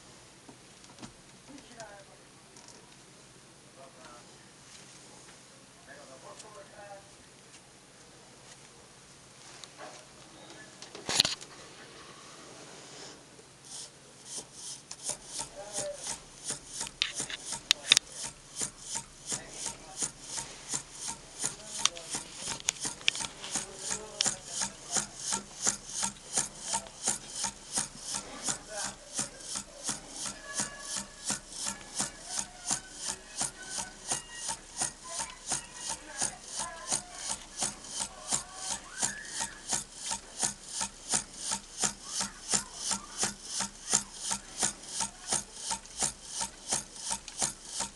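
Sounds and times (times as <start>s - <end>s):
engine metronome ticking: 13.7s - 47.9s.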